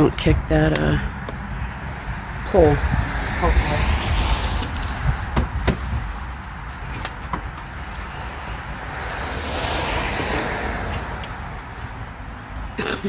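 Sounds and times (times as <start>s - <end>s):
wind rumble on microphone: 0.0s - 6.8s
car passing: 0.6s - 12.8s.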